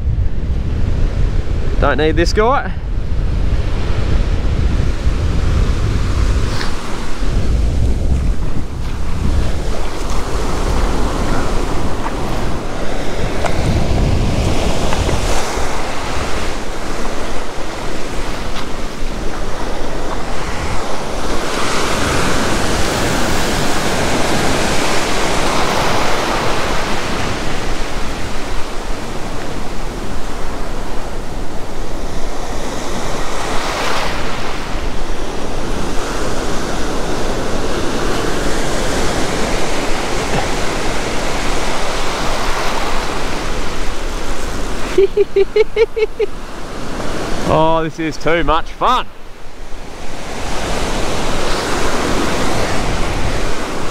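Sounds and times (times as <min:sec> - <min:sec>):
ocean surf breaking on beach: 0:00.0 - 0:53.9.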